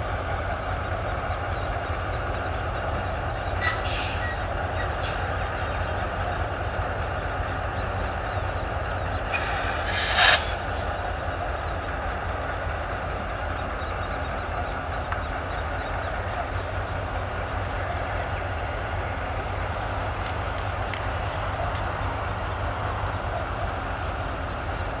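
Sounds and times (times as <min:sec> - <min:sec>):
heavy railway equipment rumbling: 0:00.0 - 0:24.8
loud sharp sound: 0:09.2 - 0:10.7.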